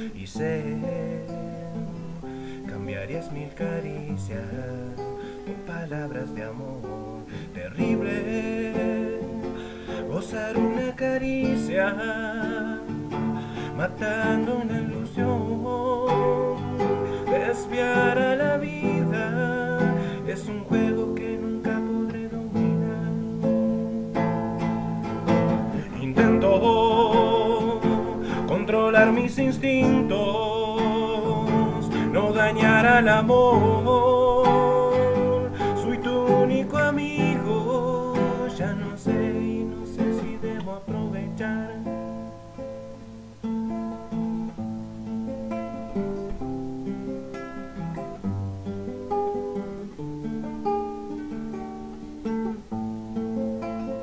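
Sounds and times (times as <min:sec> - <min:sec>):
man singing: 0:00.0 - 0:42.8
acoustic guitar: 0:00.0 - 0:54.0.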